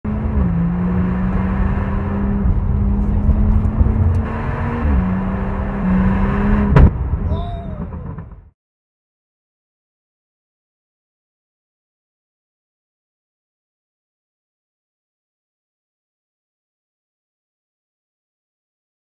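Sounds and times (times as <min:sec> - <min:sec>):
road noise: 0:00.0 - 0:08.5
car exhaust engine note: 0:00.6 - 0:08.4.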